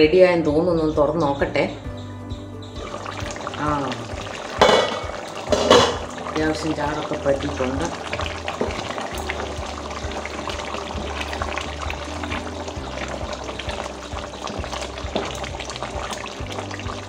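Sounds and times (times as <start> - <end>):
background music: 0.0 - 17.0
curry bubbling in pot: 2.7 - 17.0.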